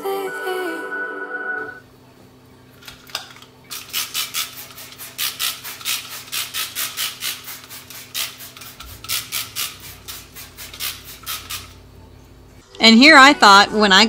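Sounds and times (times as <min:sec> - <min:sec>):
hand scrubbing stove surface: 0:04.4 - 0:11.7.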